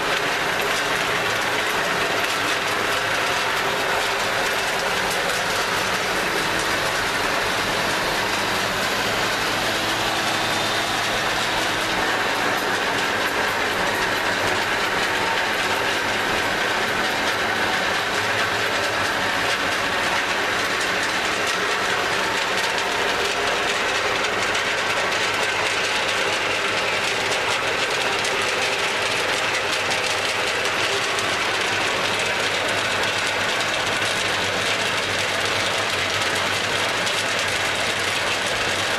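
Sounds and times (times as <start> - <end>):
dust suction blower: 4.0 - 21.8.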